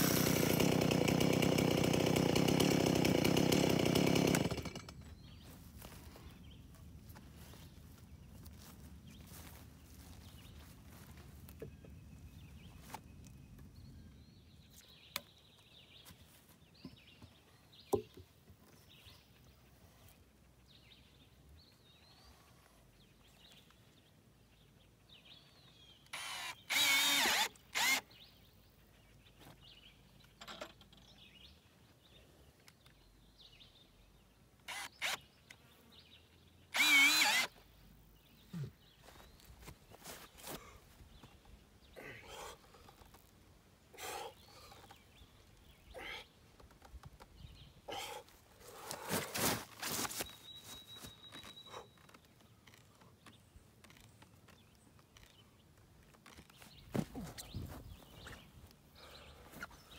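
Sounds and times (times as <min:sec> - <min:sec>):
cordless drill running: 0:00.0 - 0:04.9, 0:26.1 - 0:28.0, 0:34.7 - 0:35.2, 0:36.7 - 0:37.6.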